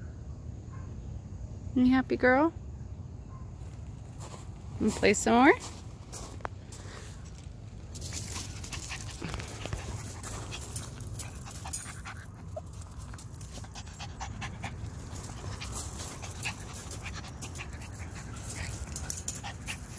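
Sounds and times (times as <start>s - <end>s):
paws crunching on gravel: 3.6s - 19.9s
puppy panting: 8.0s - 19.9s.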